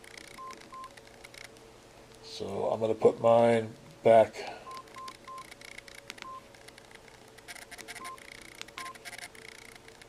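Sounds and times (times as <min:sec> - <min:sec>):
phone keypad beeps: 0:00.3 - 0:00.9, 0:04.7 - 0:05.6, 0:06.2 - 0:06.4, 0:07.7 - 0:09.3
phone being handled: 0:04.7 - 0:10.0.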